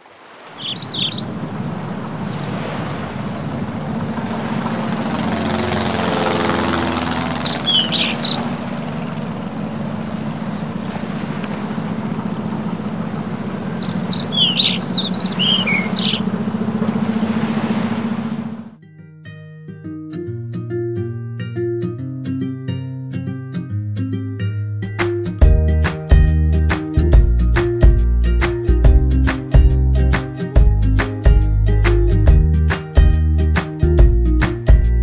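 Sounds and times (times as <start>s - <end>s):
small birds chirping: 0.4s - 17.2s
low drone: 3.4s - 18.8s.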